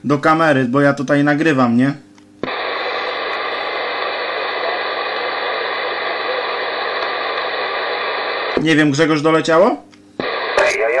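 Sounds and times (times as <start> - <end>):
radio static hiss: 2.4 - 11.0.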